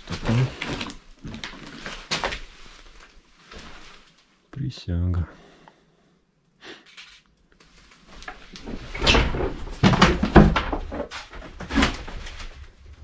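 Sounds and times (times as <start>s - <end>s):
knocks and clatter: 8.6s - 12.6s.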